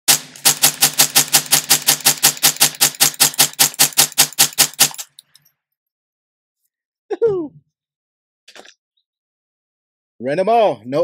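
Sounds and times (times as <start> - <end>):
rifle rapid fire: 0.1 - 5.1.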